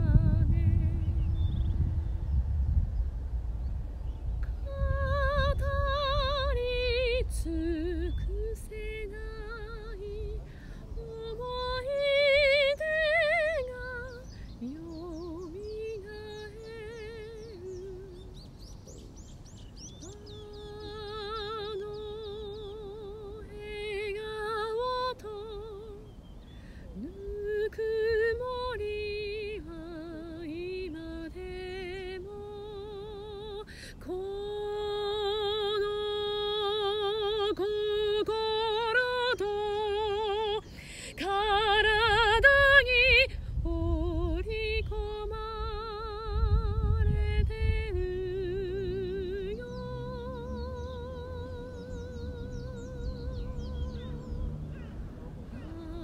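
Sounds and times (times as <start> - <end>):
woman singing soprano: 0.0 - 1.4, 4.4 - 18.5, 19.9 - 26.2, 26.8 - 54.7, 55.5 - 56.0
singer breathing: 10.4 - 10.9, 26.4 - 27.0, 33.7 - 34.0, 40.6 - 41.2.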